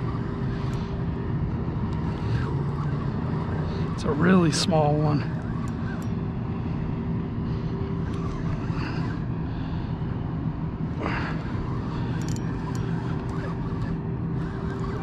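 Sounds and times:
engine drone: 0.0s - 15.0s.

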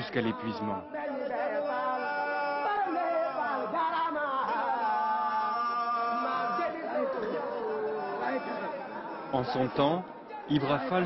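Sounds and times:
people chanting with long held notes: 0.0s - 11.0s.

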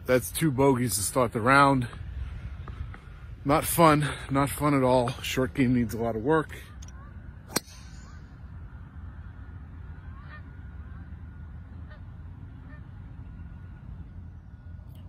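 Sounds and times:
low rumble of open air: 0.0s - 15.0s
geese honking faintly: 6.5s - 14.7s
golf club striking ball: 7.5s - 8.2s.

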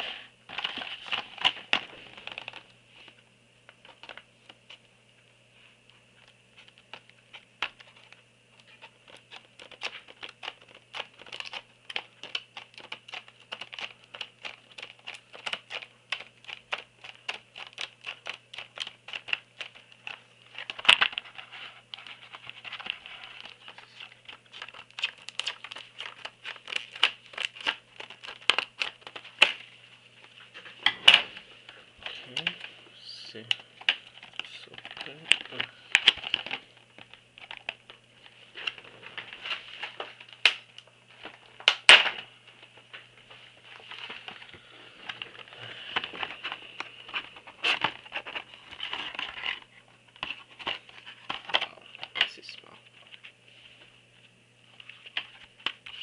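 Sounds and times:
plastic clicks and crackles: 6.2s - 29.6s, 33.4s - 38.0s
scissors cutting plastic: 6.6s - 29.6s.

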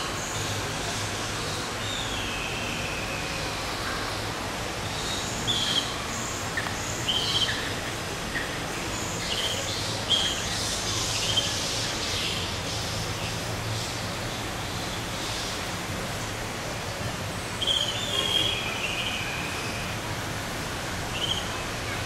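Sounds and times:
small birds chirping: 4.9s - 15.7s, 17.5s - 20.0s, 21.1s - 22.0s.

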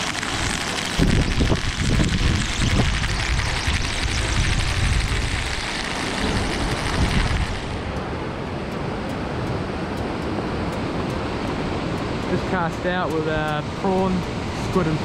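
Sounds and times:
surf washing over pebble beach: 0.0s - 8.0s
wind rumbling on microphone: 0.0s - 15.0s.

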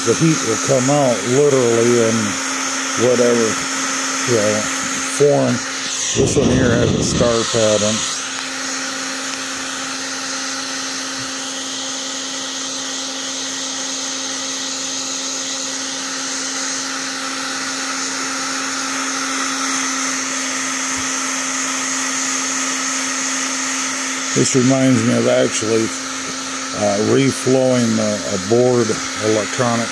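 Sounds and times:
heat gun blower rushing: 0.0s - 29.9s.

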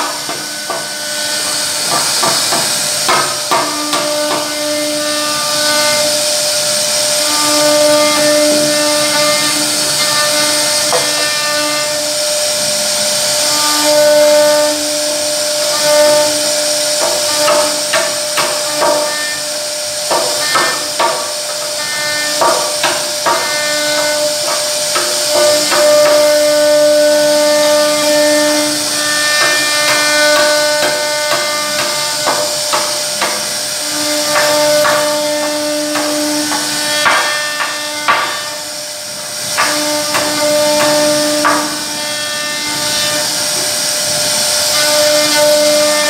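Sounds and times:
router spindle hiss: 0.0s - 46.0s
bit clicking and knocking: 20.1s - 26.4s.

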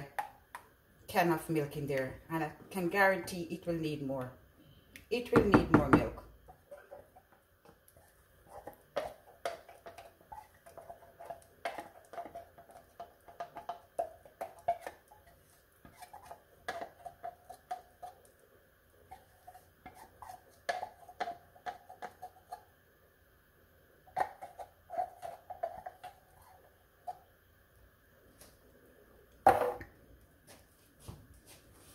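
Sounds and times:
spoon scraping a can: 7.9s - 18.3s, 19.1s - 22.7s, 24.1s - 27.2s
thick porridge plopping: 19.1s - 22.6s.

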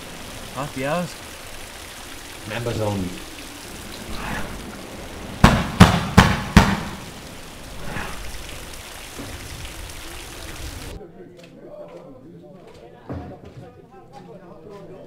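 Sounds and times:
knocks on a door: 5.4s - 7.0s.

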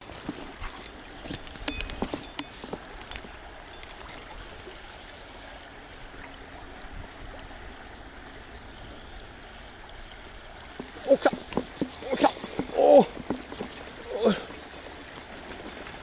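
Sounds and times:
flowing river water: 0.0s - 16.0s
faint clicks: 10.8s - 16.0s.

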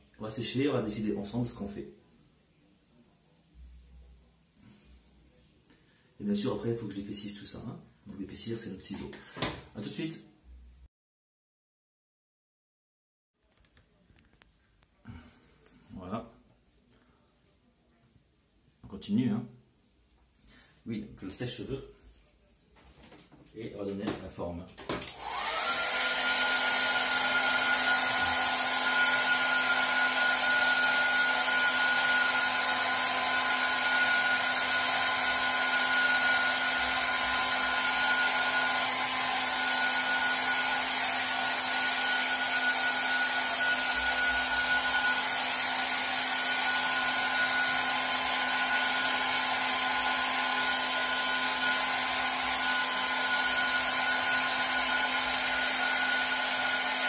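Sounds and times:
hair dryer running: 24.9s - 57.0s.

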